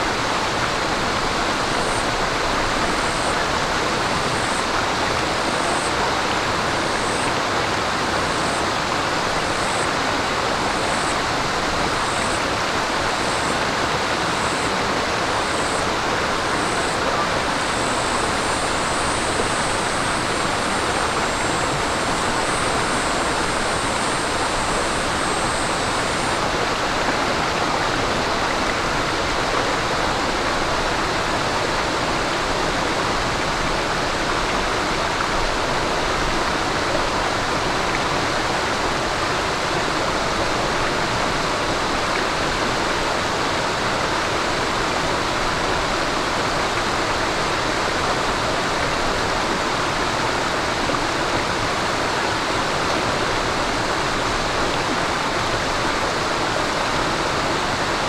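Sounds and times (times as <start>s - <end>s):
stream water flowing over rocks: 0.0s - 58.0s.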